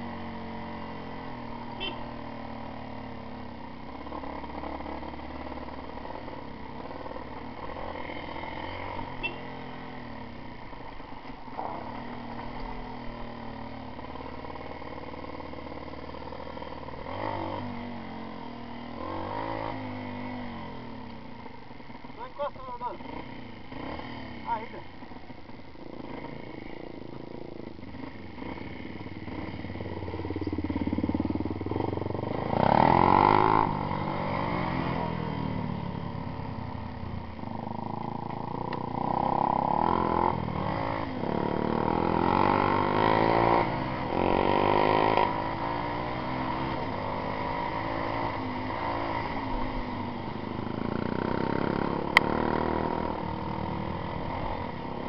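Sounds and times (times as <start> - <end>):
dirt bike engine revving: 11.8 - 20.7, 22.1 - 24.8, 25.8 - 35.6, 37.5 - 55.0.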